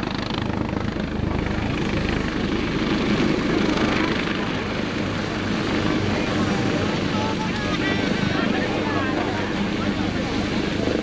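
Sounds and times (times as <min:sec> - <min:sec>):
helicopter hovering: 0:00.0 - 0:11.0.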